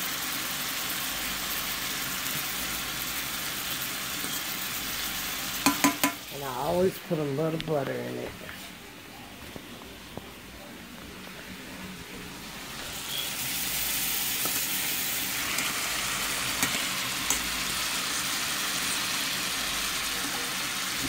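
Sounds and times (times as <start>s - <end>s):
meat frying in a pan: 0.0s - 6.6s, 12.5s - 21.0s
small pops of frying fat: 5.6s - 6.2s, 14.4s - 14.7s, 16.5s - 17.5s.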